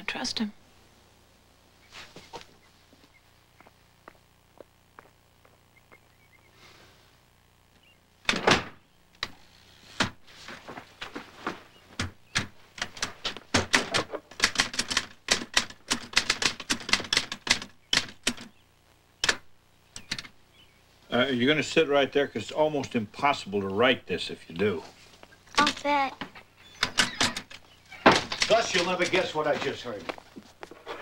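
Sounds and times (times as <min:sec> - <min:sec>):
typewriter keystrokes clacking: 0:12.4 - 0:18.5.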